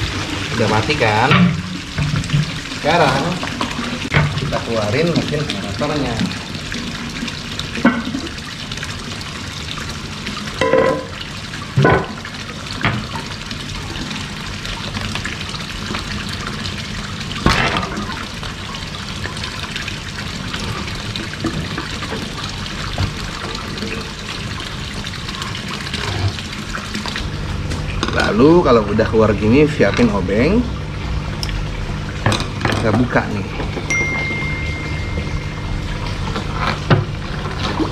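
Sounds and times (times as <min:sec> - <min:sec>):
waterfall splashing into pond: 0:00.0 - 0:37.9.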